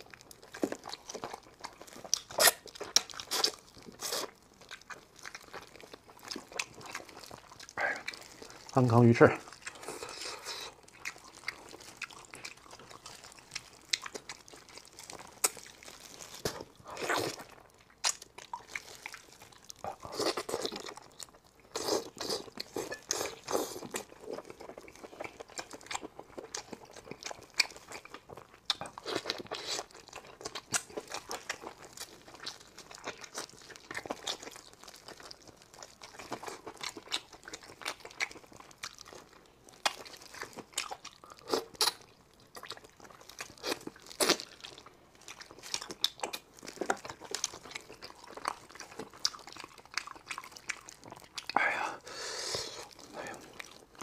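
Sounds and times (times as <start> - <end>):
crisp crunches: 0.0 - 51.5
wet tearing of food: 0.0 - 51.6
wet chewing and lip smacking: 0.0 - 51.8.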